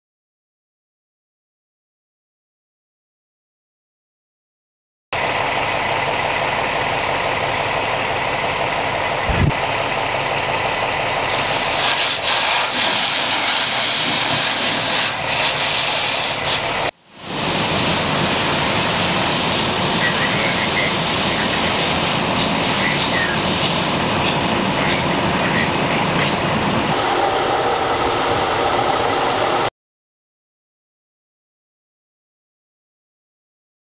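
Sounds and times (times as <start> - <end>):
low rumble: 5.2 - 11.7, 16.4 - 29.7
fire hose spraying water: 11.2 - 29.7.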